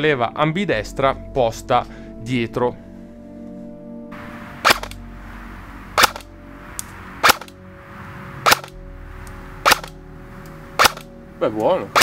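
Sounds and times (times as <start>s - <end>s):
airsoft gun shots: 4.6s - 5.0s, 6.0s - 6.3s, 7.2s - 7.6s, 8.4s - 8.8s, 9.6s - 10.0s, 10.8s - 11.1s.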